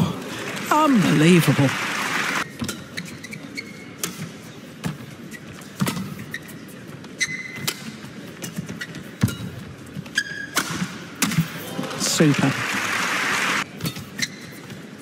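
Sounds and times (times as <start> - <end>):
shoes squeaking on court: 2.4 - 10.6, 13.7 - 15.0.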